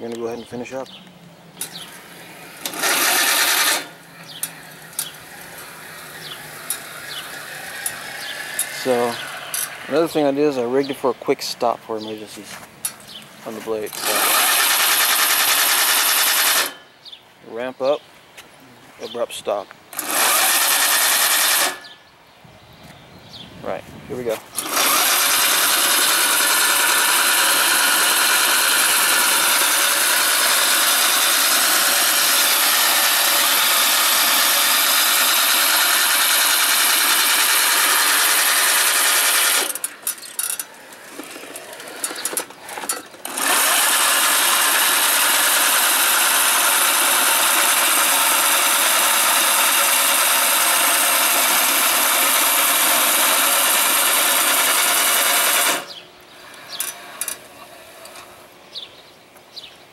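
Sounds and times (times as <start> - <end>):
electric lawn mower whirring: 1.5 - 10.5, 13.9 - 17.0, 19.9 - 22.0, 24.5 - 58.6.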